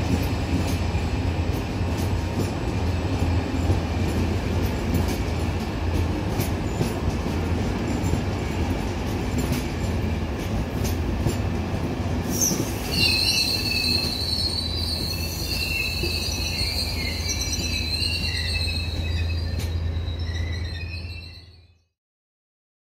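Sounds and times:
train wheels rumbling on rail: 0:00.0 - 0:21.5
train wheels squealing: 0:12.2 - 0:22.0.

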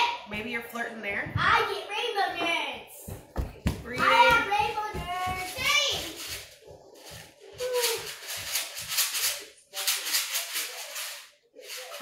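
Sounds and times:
candy rattling in shaken box: 0:05.3 - 0:12.0.

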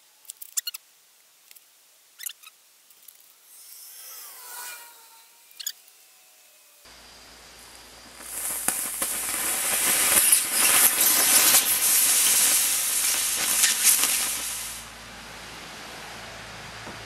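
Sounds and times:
hiss of escaping gas and flame: 0:03.5 - 0:17.0
crackling pops: 0:07.0 - 0:14.9.

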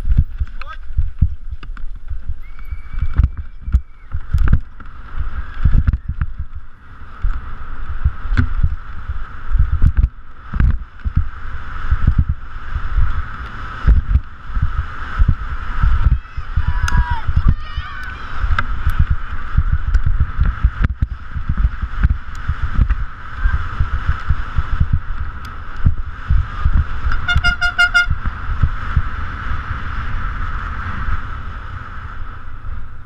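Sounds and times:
bike rattling over rough track: 0:00.0 - 0:33.0
wind rumble: 0:00.0 - 0:33.0
spectators shouting: 0:16.0 - 0:18.5
pulsing horn-like tone: 0:27.1 - 0:28.2.

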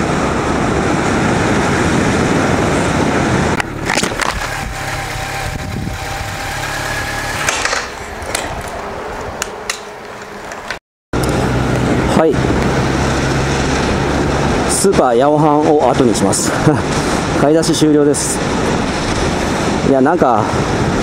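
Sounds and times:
wind rush: 0:00.0 - 0:10.6, 0:11.2 - 0:21.0
motorcycle engine running: 0:02.7 - 0:08.2.

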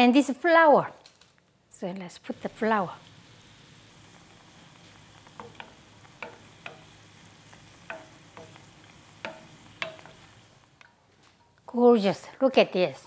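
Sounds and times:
oil bubbling and sizzling: 0:02.0 - 0:11.9
wooden spoon knocking against pot: 0:05.4 - 0:06.9, 0:07.8 - 0:10.2.

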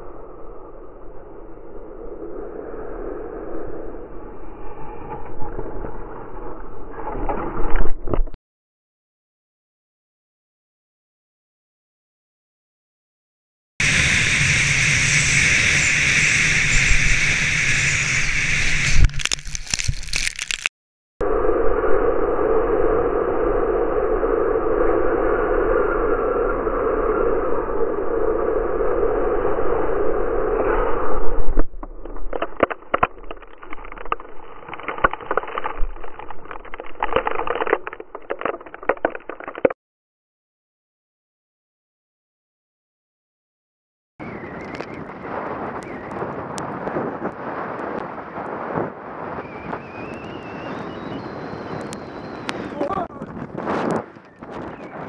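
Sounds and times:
wind rushing on microphone: 0:13.8 - 0:20.1, 0:44.2 - 0:55.0
snowboard carving over snow: 0:13.8 - 0:20.5, 0:45.3 - 0:55.0
snow crunching and scraping: 0:18.8 - 0:20.7
knocks and scrapes: 0:31.8 - 0:39.8.

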